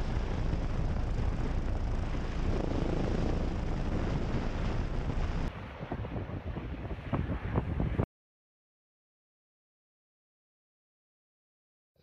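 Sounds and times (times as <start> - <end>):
helicopter hovering: 0.0 - 7.0.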